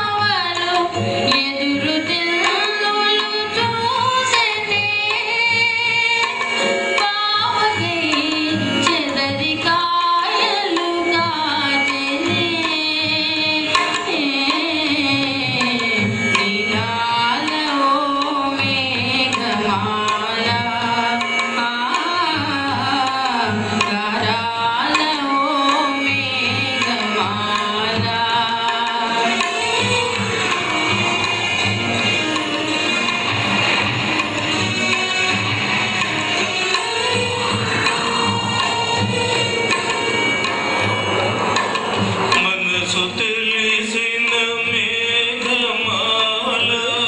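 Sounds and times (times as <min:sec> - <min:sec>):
ornamented vocal melody: 0:00.0 - 0:30.8, 0:42.2 - 0:47.0
tabla and percussion: 0:00.0 - 0:47.0.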